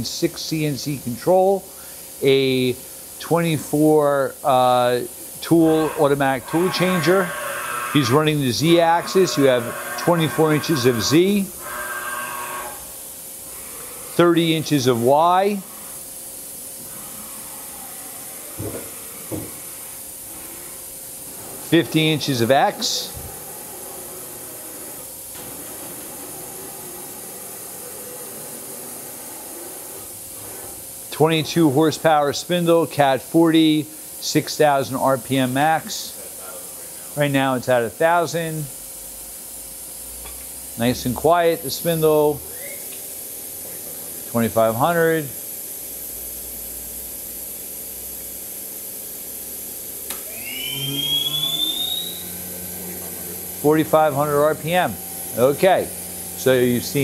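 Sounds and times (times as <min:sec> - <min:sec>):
faint hum: 0:00.0 - 0:45.4, 0:50.0 - 0:57.0
machine tool hissing: 0:04.4 - 0:17.6
spindle whine rising: 0:05.4 - 0:13.0, 0:50.1 - 0:57.0.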